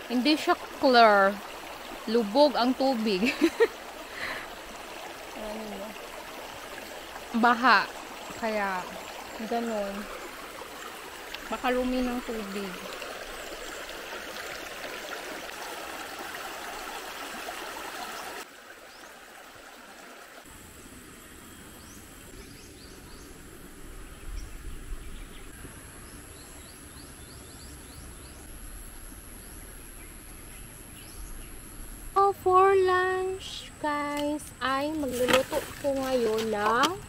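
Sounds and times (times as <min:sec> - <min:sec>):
creek rushing over rocks: 0:00.0 - 0:20.5.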